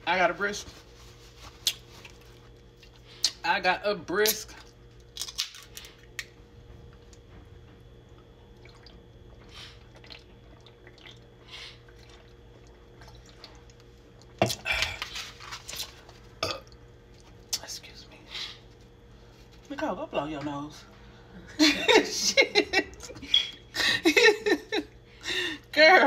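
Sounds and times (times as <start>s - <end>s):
liquid and swallowing: 8.0s - 17.6s.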